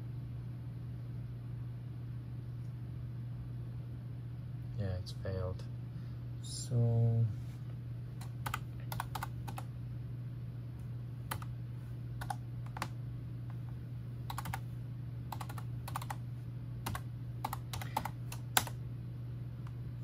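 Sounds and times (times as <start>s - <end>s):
steady low hum: 0.0s - 20.0s
computer keyboard typing: 8.2s - 9.7s, 11.3s - 11.5s, 12.2s - 13.0s, 14.3s - 14.7s, 15.3s - 16.2s, 16.8s - 18.8s.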